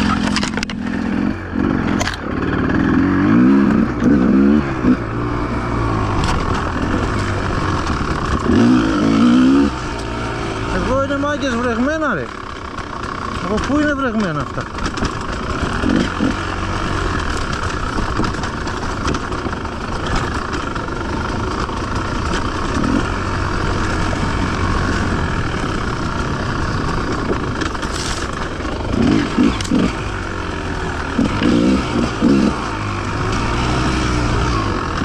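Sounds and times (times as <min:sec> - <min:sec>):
motorcycle engine running: 0:00.0 - 0:35.0.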